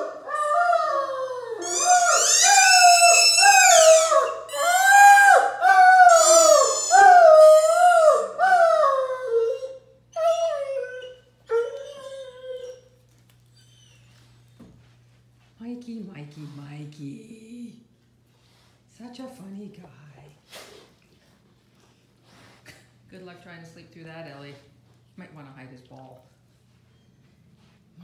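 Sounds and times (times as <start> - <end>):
dog howling: 0.0 - 12.8.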